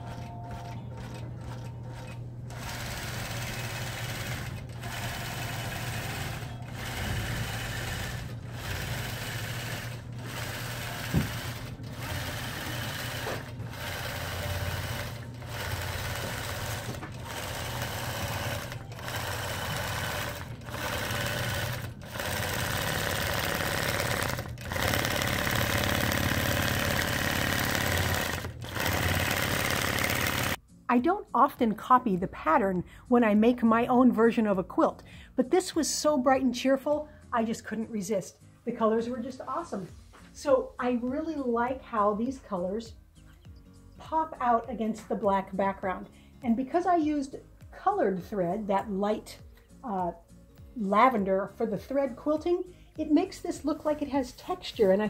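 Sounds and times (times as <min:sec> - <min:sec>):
quilting machine humming: 0:00.0 - 0:30.6.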